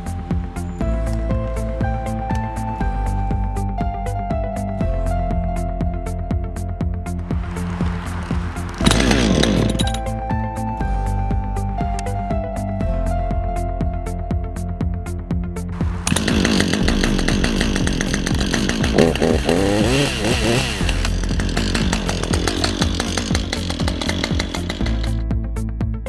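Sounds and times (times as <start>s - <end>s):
chainsaw engine revving: 7.5s - 10.1s, 15.8s - 25.2s.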